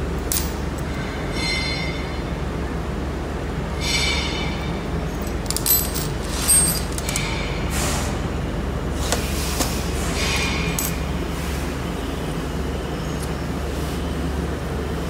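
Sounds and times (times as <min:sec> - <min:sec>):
low machine hum: 0:00.0 - 0:15.0
metal clinks and knocks: 0:00.2 - 0:02.2, 0:03.8 - 0:07.6, 0:10.2 - 0:11.1.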